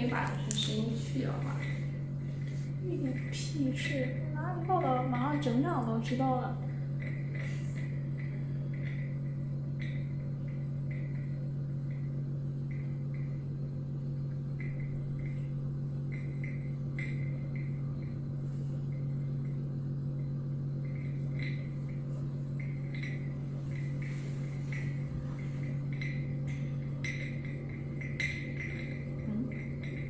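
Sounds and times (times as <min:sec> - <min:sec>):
stirrer electrical hum: 0:00.0 - 0:30.0
faint high ticks: 0:06.0 - 0:15.5.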